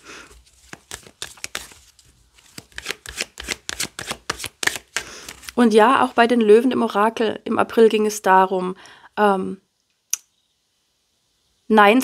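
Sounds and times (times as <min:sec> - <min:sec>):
cards being shuffled: 0:00.2 - 0:05.6.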